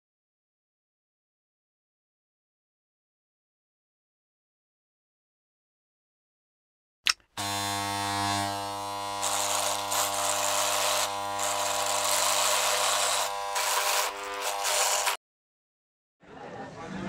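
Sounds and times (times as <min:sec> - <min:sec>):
electric hair clipper buzzing: 0:07.1 - 0:15.2.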